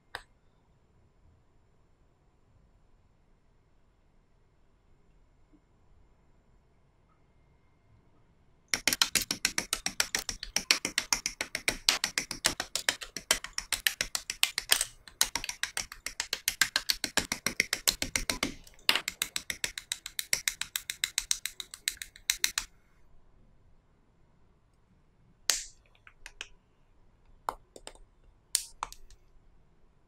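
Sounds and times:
rapid sharp clicks: 0:08.8 - 0:22.7, 0:25.5 - 0:26.6.

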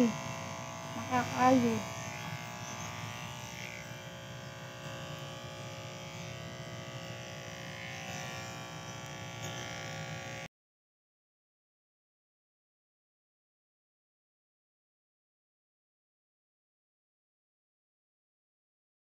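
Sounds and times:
electric hair clippers buzzing: 0:00.0 - 0:10.5.

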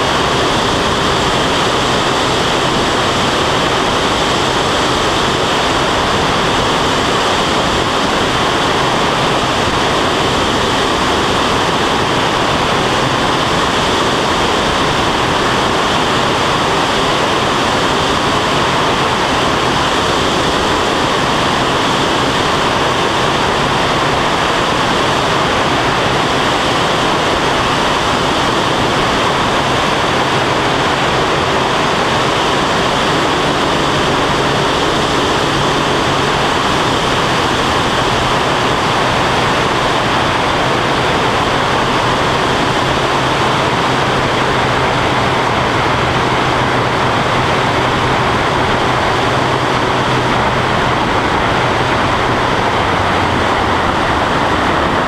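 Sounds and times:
engine and propeller droning: 0:00.0 - 0:55.0
rush of airflow: 0:00.0 - 0:55.0.

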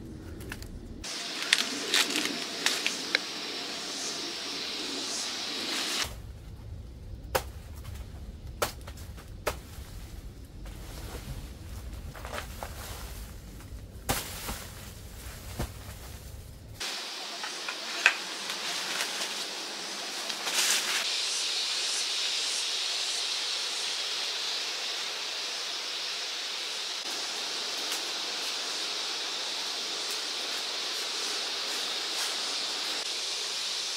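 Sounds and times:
low rumble: 0:00.0 - 0:12.2
steady high hiss: 0:01.0 - 0:33.9.

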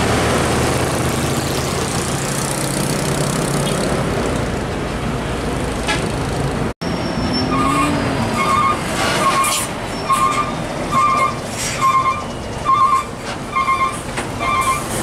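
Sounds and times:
tyre and traffic noise: 0:00.0 - 0:15.0
truck diesel engine droning: 0:06.8 - 0:15.0.

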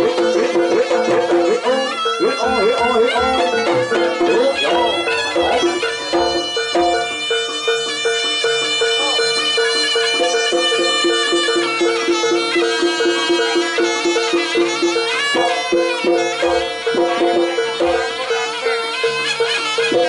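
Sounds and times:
wavering high melody: 0:00.0 - 0:20.0
repeating two-note figure: 0:00.2 - 0:07.3
low drum or gong strokes: 0:02.5 - 0:07.2.

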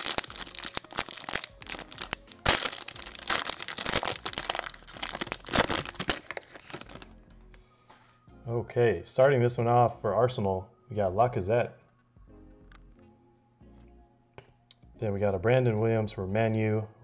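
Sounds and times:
plastic wrapper crinkling and tearing: 0:00.0 - 0:07.1.

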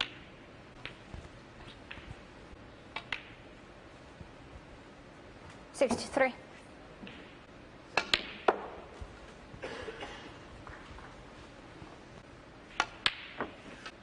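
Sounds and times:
snooker balls clicking: 0:00.0 - 0:03.7, 0:07.0 - 0:09.3, 0:12.7 - 0:14.0.

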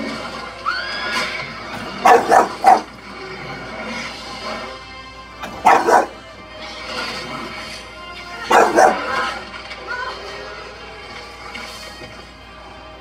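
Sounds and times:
film soundtrack music from television: 0:00.0 - 0:13.0
dog barking: 0:02.0 - 0:02.9, 0:05.5 - 0:06.2, 0:08.5 - 0:09.2.

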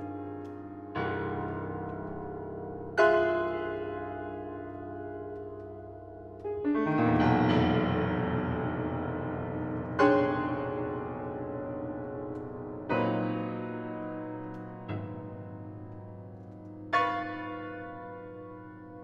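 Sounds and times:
grand piano playing chords: 0:00.0 - 0:19.0.

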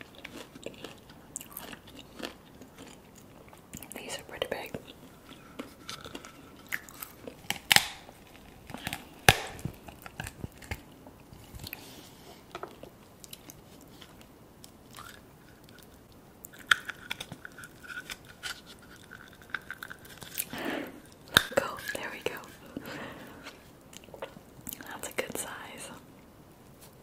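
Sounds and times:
close chewing: 0:00.0 - 0:24.9
lobster shells cracking: 0:04.8 - 0:11.0, 0:12.6 - 0:22.8.

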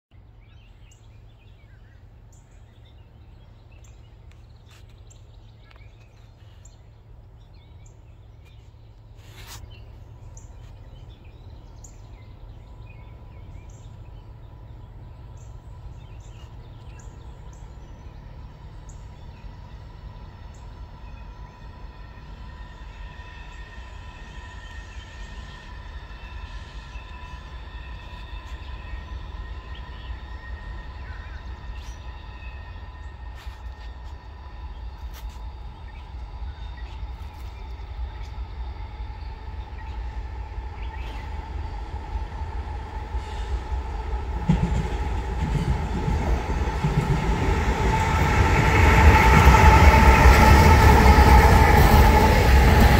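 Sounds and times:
distant train rumble: 0:00.1 - 0:52.9
birds chirping: 0:00.2 - 0:52.9
train whine: 0:00.2 - 0:52.9.

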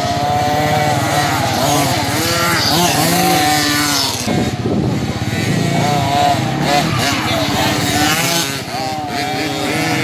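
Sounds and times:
motocross bike engines revving: 0:00.0 - 0:10.0.

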